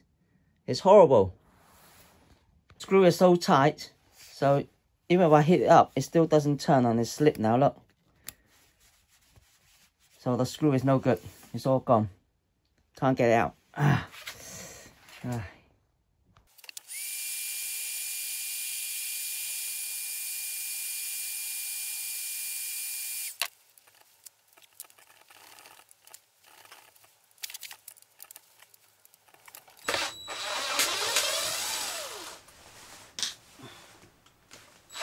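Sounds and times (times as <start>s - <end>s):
impact driver running: 16.7s - 23.5s, 29.8s - 32.5s
heat gun hissing and whining: 16.8s - 23.5s, 29.8s - 32.5s.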